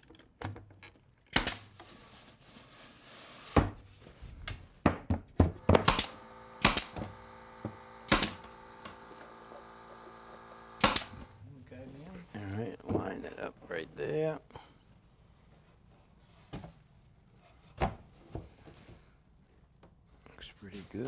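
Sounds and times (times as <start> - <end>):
nailer shots with air puffs: 1.3 - 1.8, 5.4 - 11.4.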